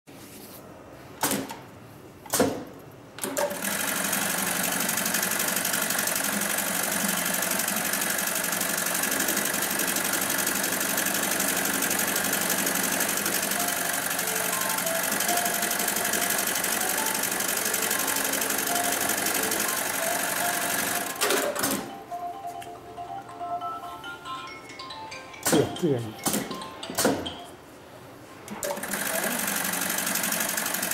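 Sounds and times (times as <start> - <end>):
machine stopping clatter: 3.2 - 21.9, 28.5 - 30.9
sewing machine stitching: 3.2 - 21.9, 28.5 - 30.9
sharp machine clacks: 3.2 - 21.9, 25.4 - 27.3, 28.6 - 30.9.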